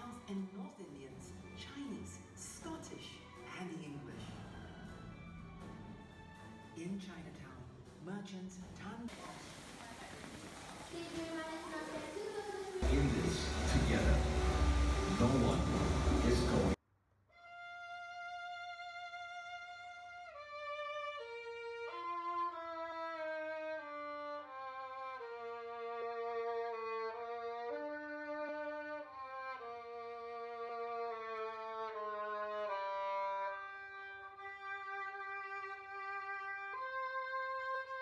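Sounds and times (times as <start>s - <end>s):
solo violin slow melody: 17.4s - 38.0s.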